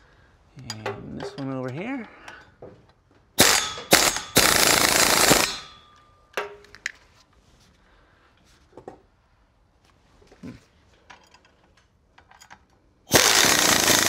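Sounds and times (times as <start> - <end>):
pneumatic air ratchet: 3.4 - 5.8, 13.1 - 14.0.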